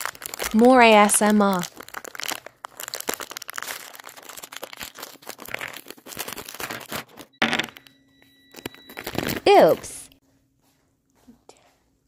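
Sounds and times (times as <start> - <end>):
plastic wrapper crinkling: 0.0 - 7.8, 8.5 - 9.9.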